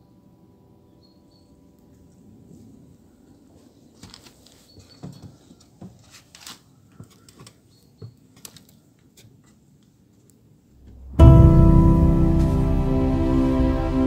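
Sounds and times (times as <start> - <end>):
low rumble: 10.8 - 14.0.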